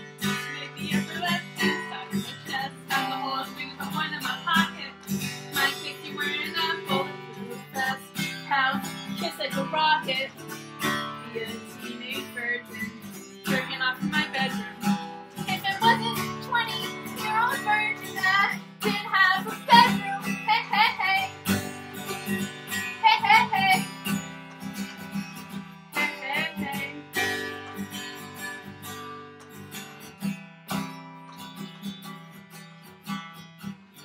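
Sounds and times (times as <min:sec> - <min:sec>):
person singing: 0:00.0 - 0:24.0, 0:25.9 - 0:27.7
acoustic guitar strumming: 0:00.0 - 0:34.0.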